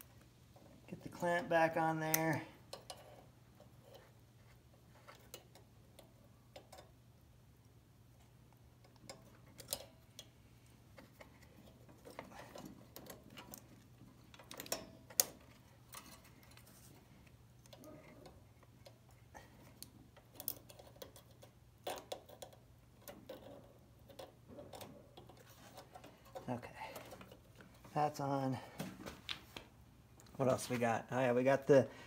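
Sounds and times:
pliers clicking on metal: 8.8 - 10.4.

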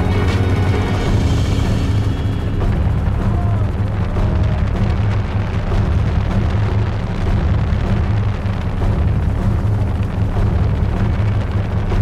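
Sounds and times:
helicopter engine and rotor rumble: 0.0 - 12.0.

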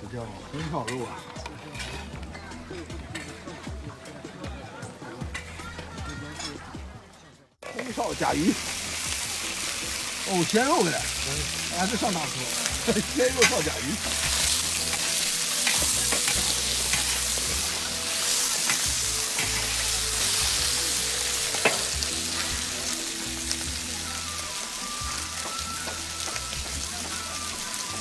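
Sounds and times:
metal spatula scraping a wok: 0.5 - 3.4, 11.6 - 23.1
food sizzling in a wok: 7.6 - 28.0.

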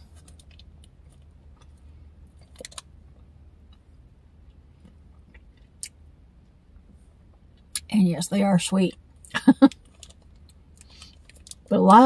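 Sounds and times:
steady low hum: 0.0 - 12.0
person chewing crunchy candy: 9.7 - 11.7.

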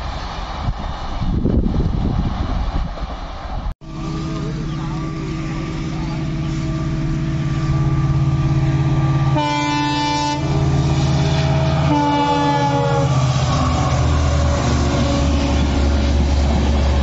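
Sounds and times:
diesel locomotive engine running: 0.0 - 17.0
train coaches rumbling past: 0.0 - 17.0
train horn blasts: 3.8 - 16.3.

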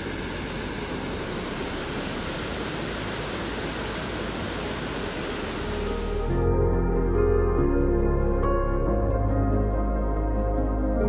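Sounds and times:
waterfall roaring: 0.9 - 6.3.

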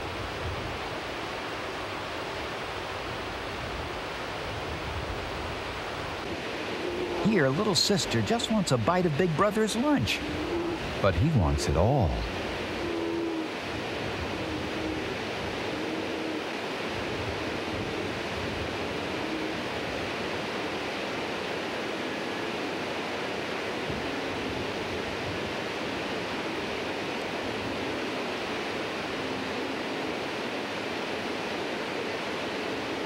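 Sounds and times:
river water rushing over rocks: 0.0 - 33.0.

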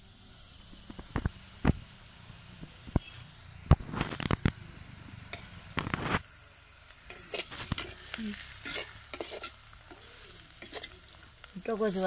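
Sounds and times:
cabbage frying in oil: 0.0 - 12.0
spoon scraping clay pot: 7.1 - 11.1.

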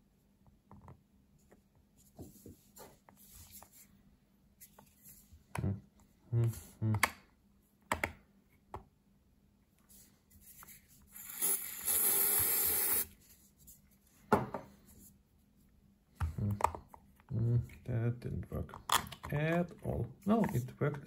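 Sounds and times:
aerosol spray hiss: 11.2 - 13.1.

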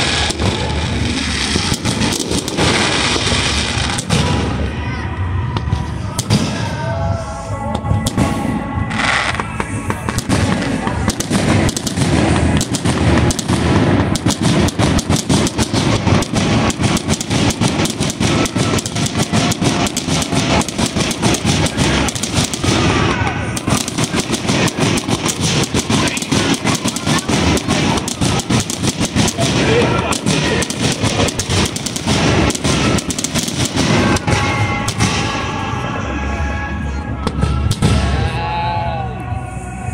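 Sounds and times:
fireworks bangs and crackles: 0.0 - 36.0, 37.2 - 38.4.

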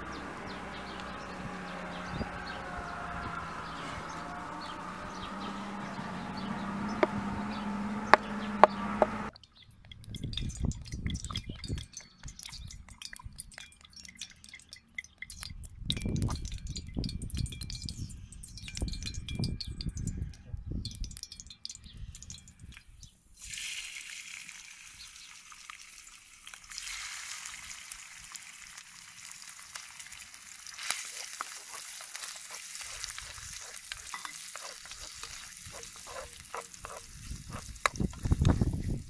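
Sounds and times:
low rumbling: 0.0 - 9.3
steady hum: 0.0 - 9.3
cooking oil being poured: 23.4 - 39.0
wood fire crackling: 27.5 - 38.0.

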